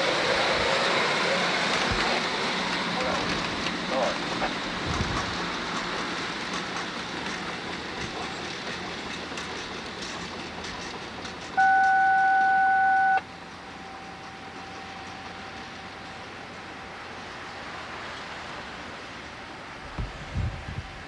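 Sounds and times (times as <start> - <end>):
train wheels clicking over rail joints: 0.0 - 12.0
steady single-pitched tone: 11.6 - 13.3.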